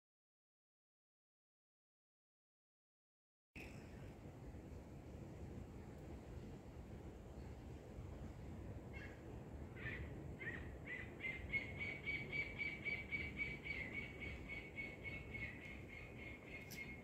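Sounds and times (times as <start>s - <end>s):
bird calling: 8.9s - 17.0s.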